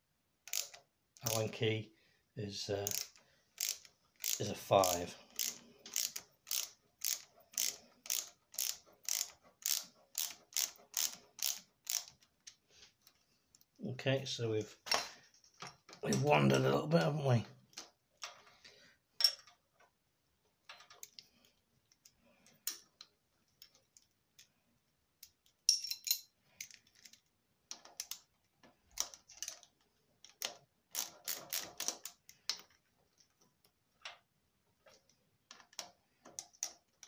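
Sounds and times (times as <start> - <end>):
metallic clicks of tools on bolts: 25.2 - 28.3.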